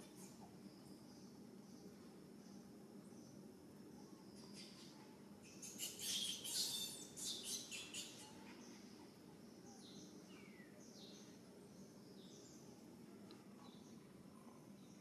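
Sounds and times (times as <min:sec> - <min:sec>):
high-pitched squeaky animal chirps: 0:05.6 - 0:08.2.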